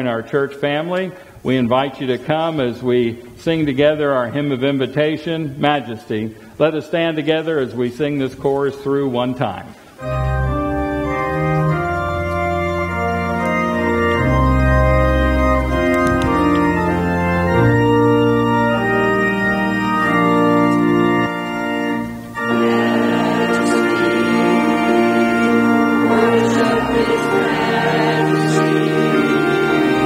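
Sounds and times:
church organ chords: 0.0 - 30.0
congregation singing: 10.1 - 30.0.

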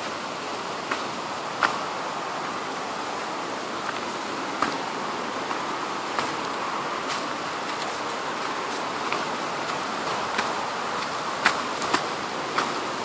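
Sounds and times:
steady hiss: 0.0 - 13.0
twigs snapping: 0.8 - 1.9, 3.8 - 13.0
footsteps on dry leaves: 0.8 - 13.0.

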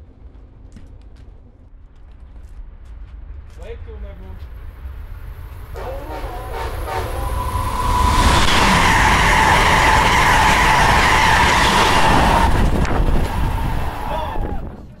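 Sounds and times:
train passing close by: 3.3 - 14.7.

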